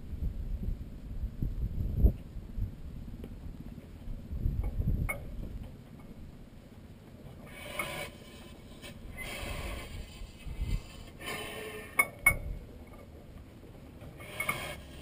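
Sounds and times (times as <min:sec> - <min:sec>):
flywheel scraping and rubbing: 0:07.3 - 0:13.2, 0:13.8 - 0:15.0.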